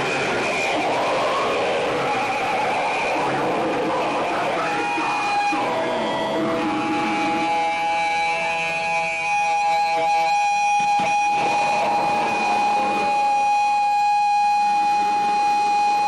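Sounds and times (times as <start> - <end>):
electric guitar ringing: 0.0 - 16.0.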